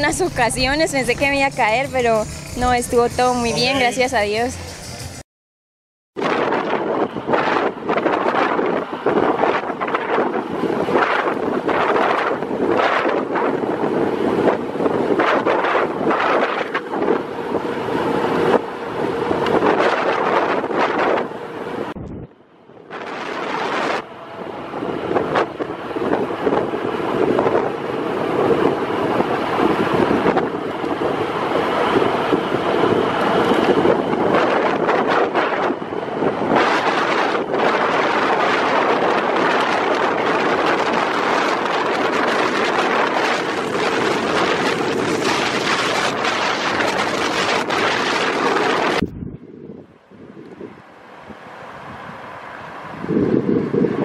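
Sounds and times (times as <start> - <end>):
vehicle road noise: 0.0 - 5.2, 6.2 - 54.0
wind buffeting microphone: 6.2 - 54.0.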